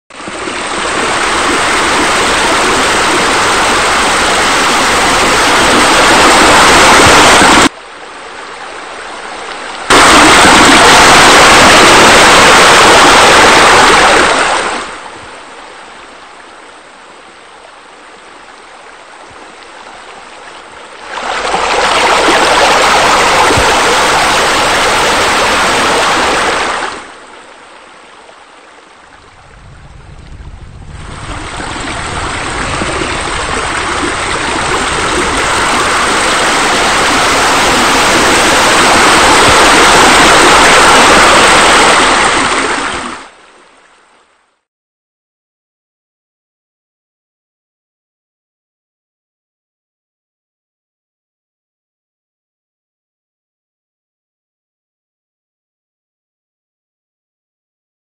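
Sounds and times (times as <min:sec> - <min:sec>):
pool water jets splashing: 0:00.1 - 0:07.8, 0:09.0 - 0:15.5, 0:19.2 - 0:27.3, 0:31.1 - 0:43.4.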